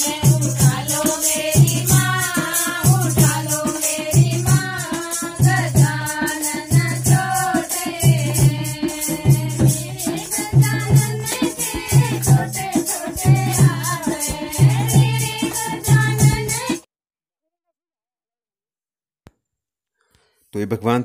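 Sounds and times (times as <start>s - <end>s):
jingling rattling percussion: 0.0s - 16.9s
women singing devotional song: 0.0s - 16.9s
low drum beat: 8.1s - 16.6s.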